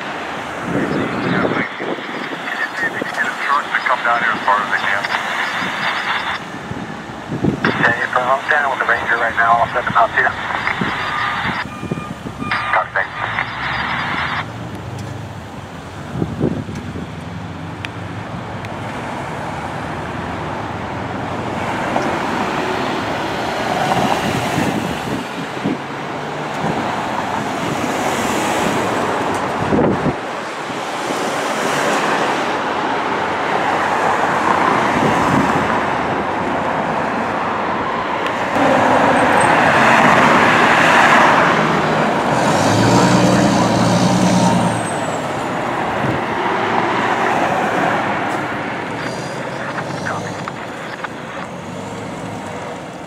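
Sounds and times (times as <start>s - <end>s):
fire engine diesel engine: 0.0s - 27.8s, 35.6s - 53.0s
road traffic passing: 0.0s - 53.0s
loud vehicle passing: 13.5s - 53.0s.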